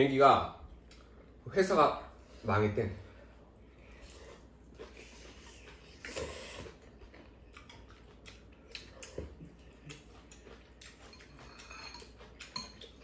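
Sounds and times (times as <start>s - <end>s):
chewing: 3.8s - 13.0s
noodle slurp: 4.3s - 7.0s
spoon and chopsticks clicking on bowls: 10.8s - 13.0s.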